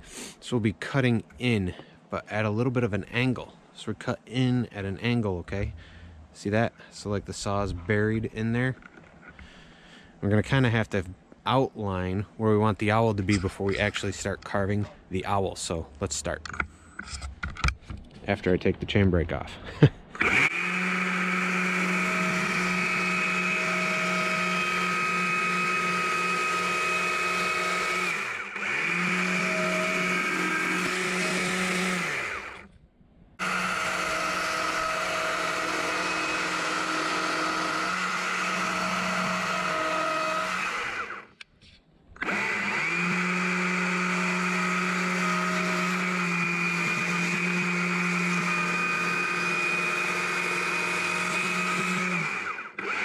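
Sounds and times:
electric chainsaw whine: 0:20.2 - 0:32.7, 0:33.4 - 0:41.4, 0:42.2 - 0:53.0.

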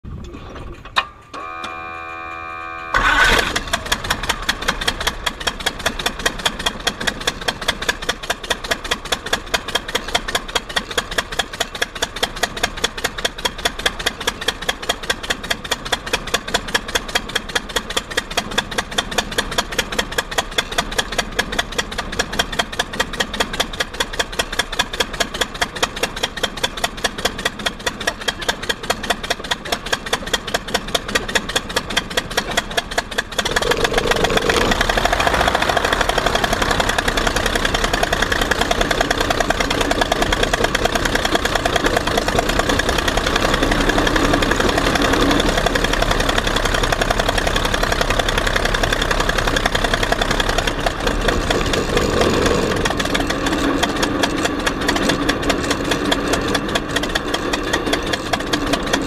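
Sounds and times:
starter motor whine: 0:01.3 - 0:05.0, 0:33.4 - 0:59.0
engine idling: 0:01.4 - 0:59.0.

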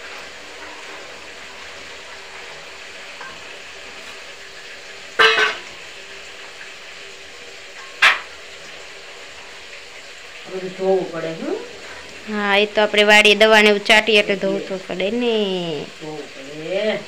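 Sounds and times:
steel bowls clanking: 0:05.1 - 0:05.9.

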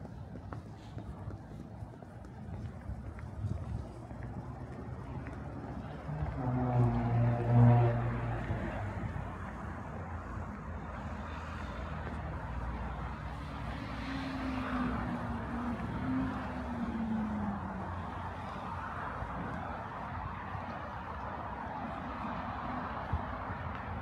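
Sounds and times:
hum of passing vehicles: 0:00.0 - 0:24.0
loud engine passing: 0:06.0 - 0:09.1.

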